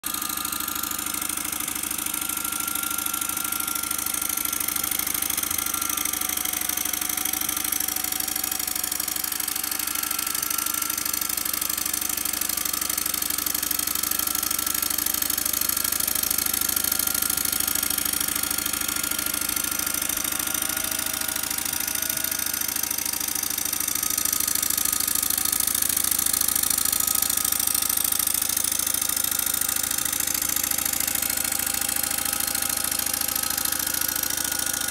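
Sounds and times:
faint wavering whine: 0.5s - 13.2s.

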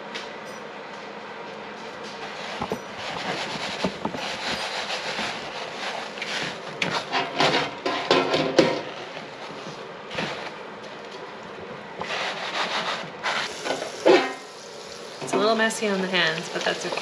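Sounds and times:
scraping in plastic bowl: 2.2s - 10.6s, 12.0s - 14.3s
dry breadcrumbs rustling: 2.3s - 7.1s.

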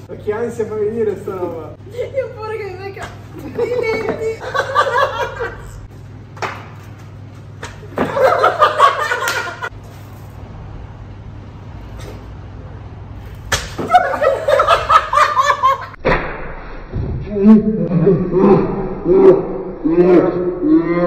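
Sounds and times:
group laughing: 3.4s - 5.9s, 7.9s - 9.7s, 13.8s - 16.0s, 17.6s - 19.5s.

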